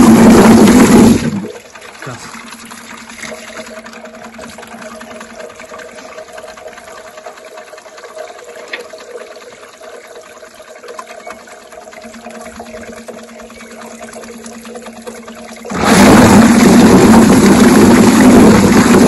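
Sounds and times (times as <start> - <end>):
motor hum: 0.0 - 19.0
water running from hose: 15.5 - 19.0.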